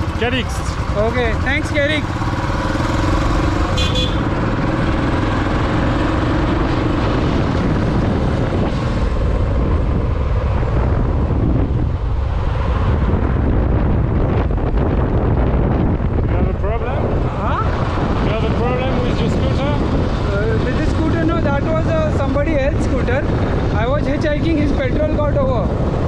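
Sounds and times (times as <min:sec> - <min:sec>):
motorcycle engine running: 0:00.0 - 0:24.4
road noise: 0:00.0 - 0:26.0
short horn toot: 0:03.7 - 0:04.2.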